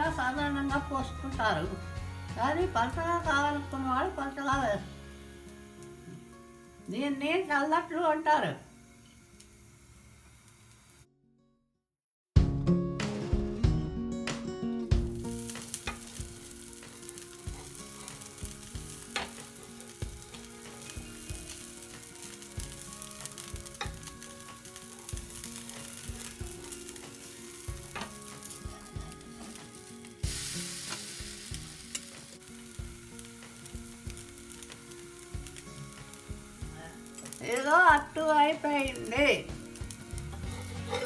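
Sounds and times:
batter sizzling on griddle: 0.0 - 11.1, 15.0 - 41.0
metal spatula scraping and tapping: 19.1 - 21.5, 23.4 - 29.8, 40.2 - 41.0.

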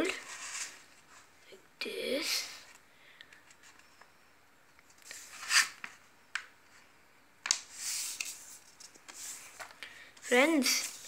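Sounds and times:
paper rustling: 7.5 - 11.0.

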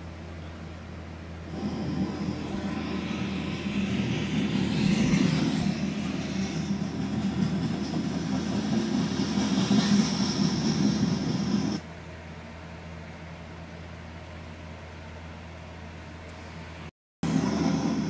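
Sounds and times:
steady hum: 0.0 - 18.0
train wheels rumbling on rail: 1.4 - 11.9, 17.2 - 18.0.

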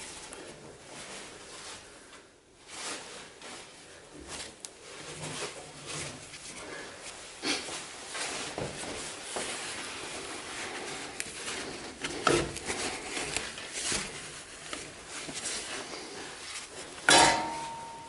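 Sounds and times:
sharp knocks: 17.1 - 18.0.

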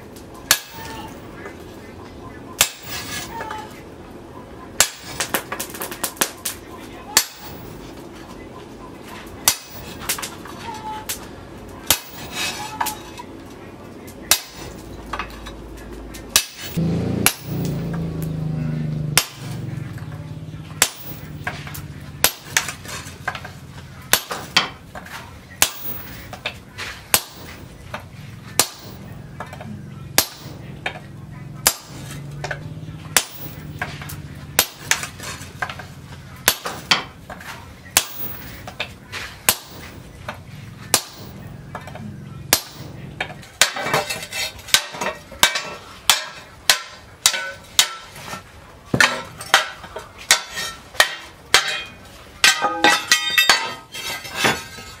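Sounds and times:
low steady hum: 0.0 - 55.0
hammer striking steel: 0.4 - 1.2, 2.6 - 3.6, 4.8 - 7.9, 9.4 - 11.2, 11.8 - 13.2, 14.2 - 15.6, 16.2 - 19.6, 20.7 - 24.8, 25.6 - 27.6, 28.5 - 31.0, 31.6 - 37.2, 37.9 - 54.6.

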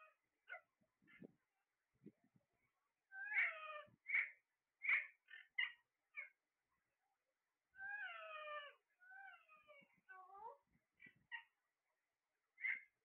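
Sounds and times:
parakeets calling: 3.2 - 6.3, 12.6 - 12.9.

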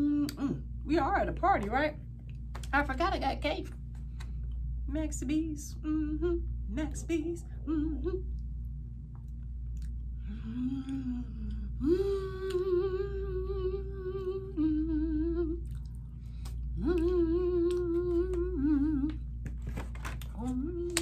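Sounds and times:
woman humming: 0.0 - 0.8, 5.4 - 8.4, 10.2 - 15.8, 16.8 - 19.3, 20.4 - 21.0.

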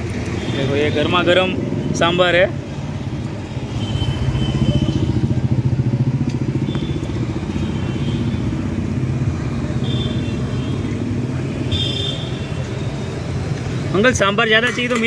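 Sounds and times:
motorbike engine running: 4.0 - 9.5.

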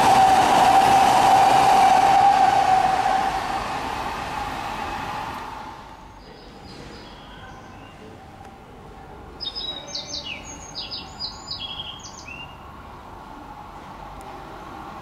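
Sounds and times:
distant train hum: 0.0 - 15.0
songbird chirping: 6.0 - 8.1, 9.4 - 12.7.

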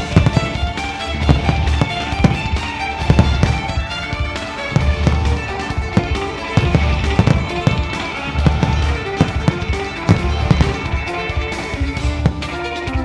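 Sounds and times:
fireworks bursting with sharp bangs: 0.0 - 13.0
loud music with heavy bass: 0.0 - 13.0.

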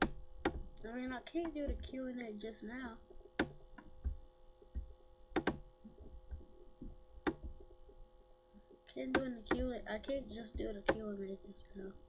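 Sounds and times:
faint electrical hum: 0.0 - 12.0
computer mouse clicks: 3.1 - 7.7.

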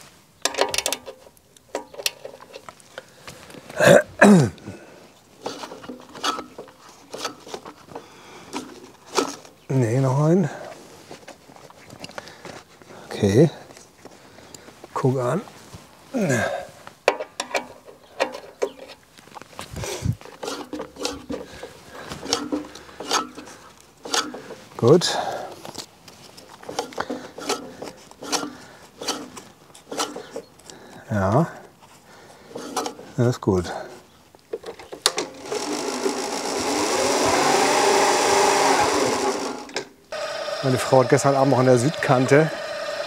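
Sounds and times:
mower blades clicking and snipping: 0.4 - 2.8, 5.4 - 9.6, 17.0 - 19.0, 20.2 - 30.8, 32.5 - 33.1, 34.4 - 43.0
electric reel mower whirring: 35.0 - 43.0.

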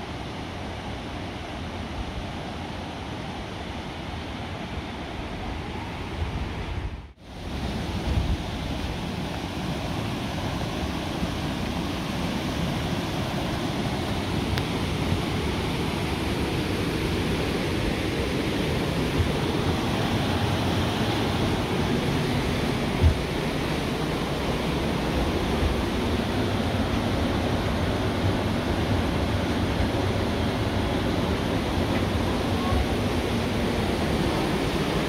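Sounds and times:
mountain stream rushing over rocks: 7.2 - 35.0.

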